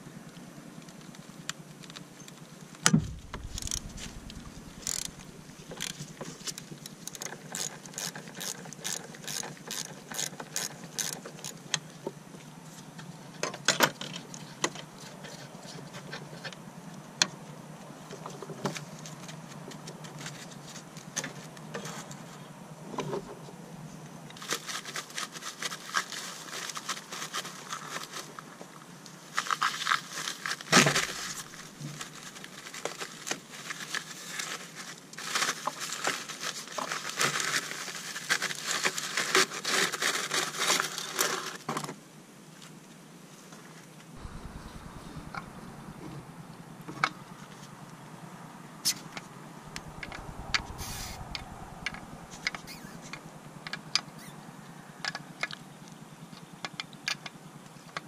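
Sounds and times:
loud knock: 2.9s - 5.8s
quick clicking: 2.9s - 7.8s.

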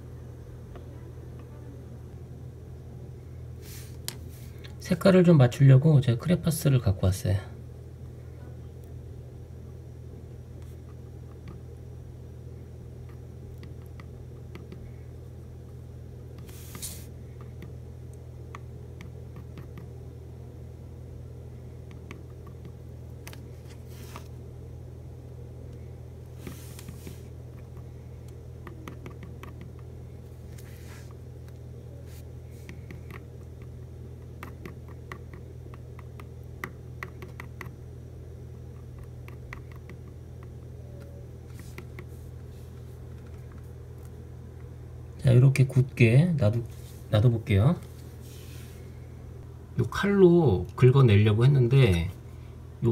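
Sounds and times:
steady low hum: 0.0s - 52.9s.

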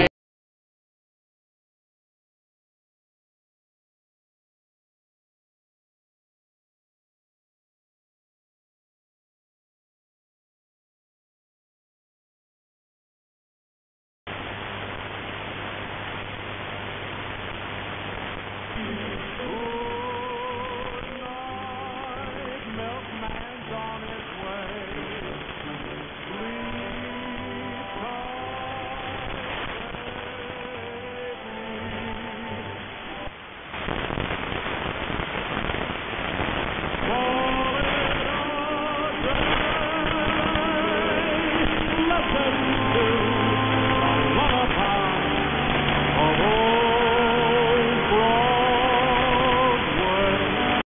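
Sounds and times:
steady low hum: 14.3s - 39.3s
radio static hiss: 14.3s - 50.9s
weak radio music: 14.3s - 50.9s.

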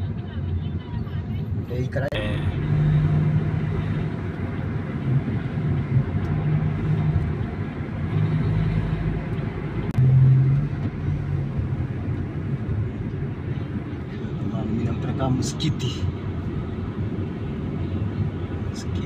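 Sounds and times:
car engine hum: 0.0s - 19.0s
tyre noise on paved road: 2.5s - 14.8s.

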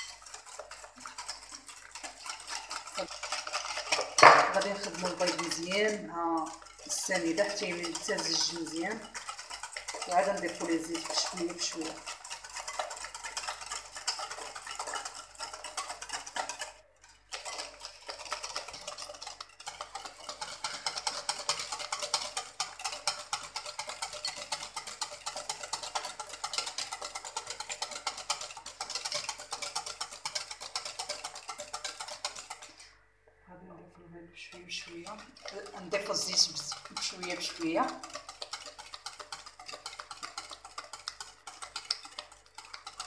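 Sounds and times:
whisk rattling against glass bowl: 0.0s - 32.9s, 34.5s - 43.0s.

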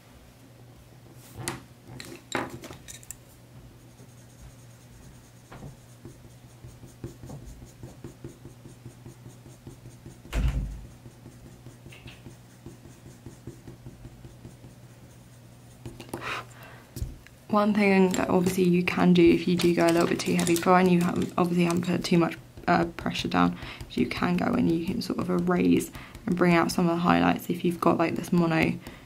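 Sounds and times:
low steady hum: 0.0s - 29.0s
pencil scratching on paper: 3.8s - 16.5s, 17.9s - 29.0s
dull thump: 10.3s - 10.9s
pencils clicking: 18.0s - 22.9s.

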